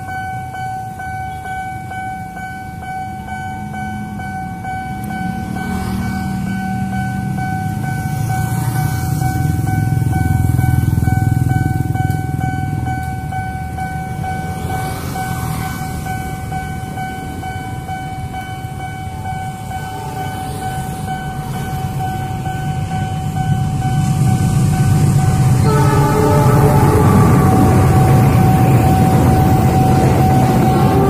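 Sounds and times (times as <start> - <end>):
approaching train rumble: 0.0 - 31.0
level crossing warning tone: 0.0 - 31.0
train horn blowing: 25.2 - 31.0.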